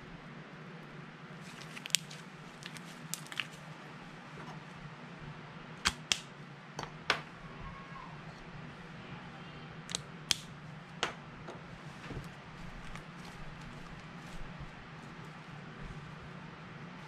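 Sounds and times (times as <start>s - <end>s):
low room hum: 0.0s - 17.0s.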